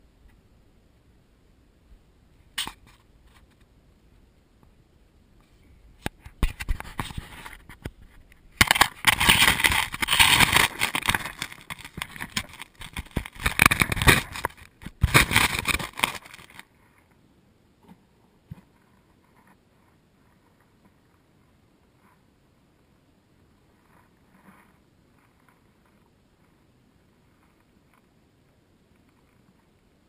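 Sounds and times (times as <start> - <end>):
camera handling on gravel: 8.6 - 16.7.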